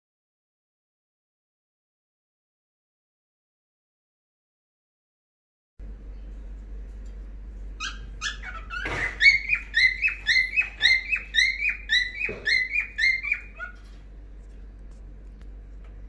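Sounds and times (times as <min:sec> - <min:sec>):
cockatiel chirping: 0:07.8 - 0:13.9.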